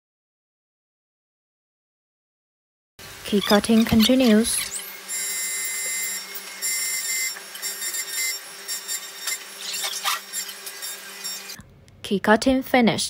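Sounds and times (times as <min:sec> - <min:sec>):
cutter scraping metal: 0:03.2 - 0:11.6
key cutting machine whining: 0:03.2 - 0:11.6.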